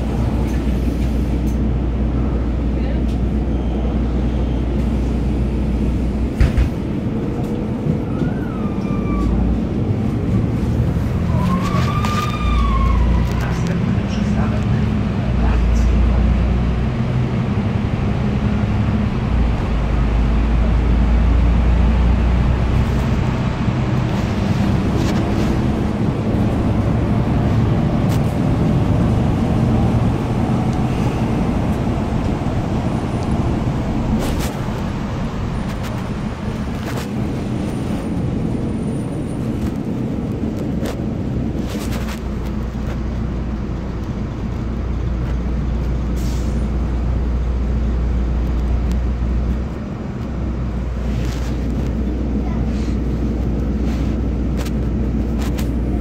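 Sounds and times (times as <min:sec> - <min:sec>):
bus body clicks and rattles: 0:00.0 - 0:01.7, 0:06.2 - 0:08.4, 0:39.4 - 0:46.2, 0:53.0 - 0:56.0
bus diesel engine: 0:00.0 - 0:56.0
road noise: 0:00.0 - 0:56.0.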